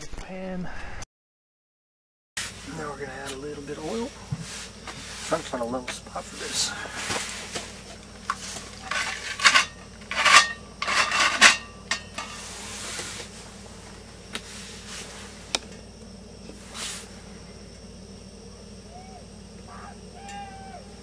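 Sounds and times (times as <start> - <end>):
frying pan clanking on stove: 8.9 - 12.4.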